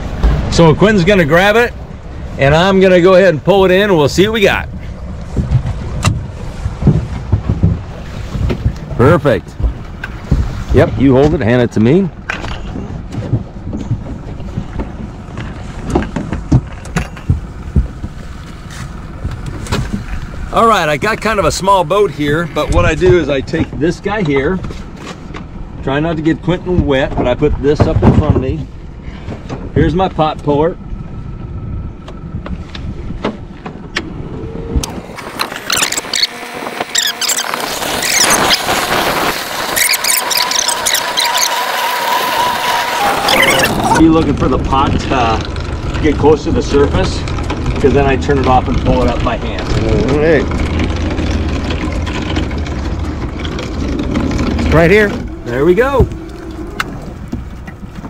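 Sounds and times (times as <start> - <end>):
boat low rumble: 0.0 - 58.0
crab pot puller hauling: 0.0 - 58.0
wind on microphone: 3.4 - 25.8, 26.4 - 58.0
sharp knocks against boat: 5.3 - 10.6, 12.2 - 20.2
line squealing: 34.2 - 57.8.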